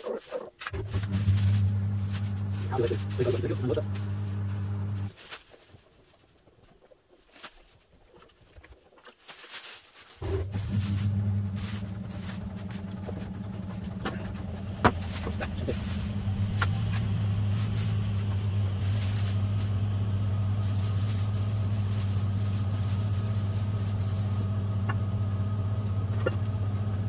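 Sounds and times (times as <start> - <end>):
low motor hum: 0.7 - 5.1, 10.2 - 27.0
water spraying and splashing: 0.7 - 5.2, 10.1 - 24.8.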